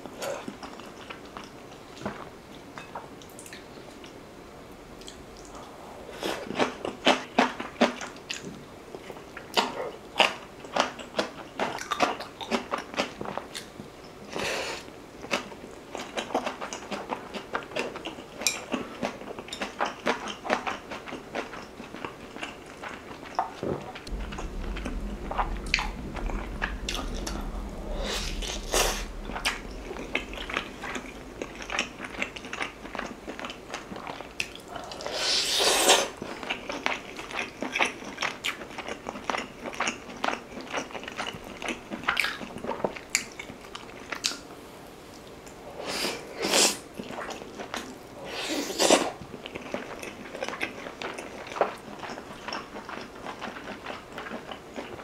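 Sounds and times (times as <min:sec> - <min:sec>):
rushing sounds: 0:24.1 - 0:34.4.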